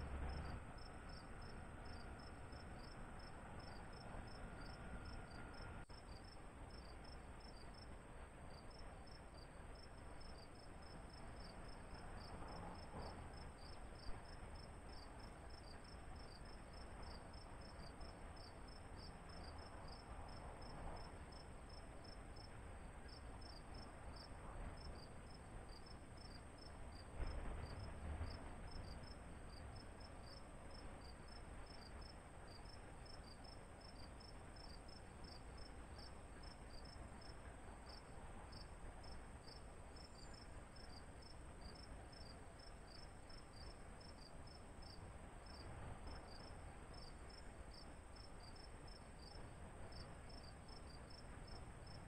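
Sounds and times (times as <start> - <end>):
low outdoor rumble: 0.0 - 52.0
insect chirping: 0.3 - 7.8, 31.0 - 45.6, 46.3 - 52.0.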